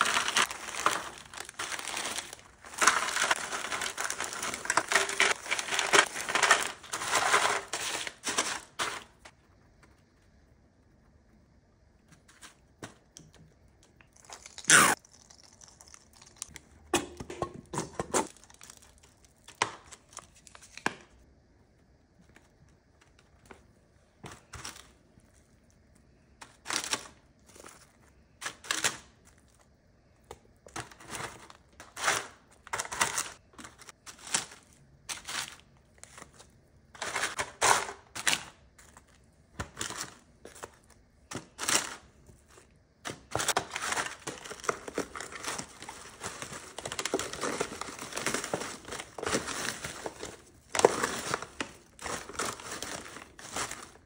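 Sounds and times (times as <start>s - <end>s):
hands crushing chips: 0.0s - 9.4s, 12.2s - 16.8s, 26.4s - 54.0s.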